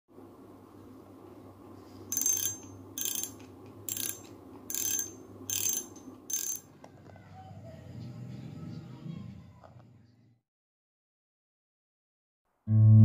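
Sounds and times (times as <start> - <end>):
fishing reel mechanical bursts: 2.1 - 6.6.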